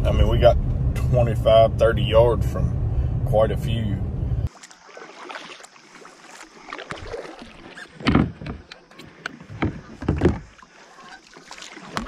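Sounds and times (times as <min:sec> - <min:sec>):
paddle swishing in water: 0:04.5 - 0:12.0.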